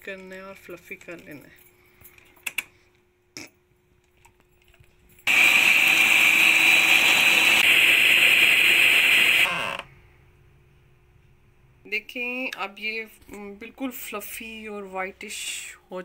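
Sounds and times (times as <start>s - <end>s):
electric mixer whining: 5.3s - 9.9s.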